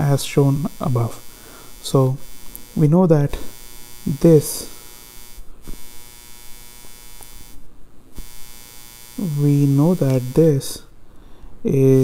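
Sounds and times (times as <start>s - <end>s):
electrical mains hum and hiss: 0.0s - 12.0s
man's drawn-out voice: 11.7s - 12.0s.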